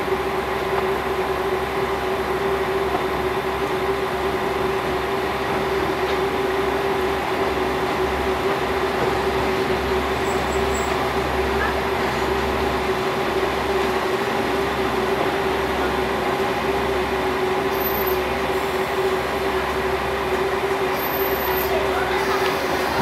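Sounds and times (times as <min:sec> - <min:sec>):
diesel engine idling: 0:01.0 - 0:23.0.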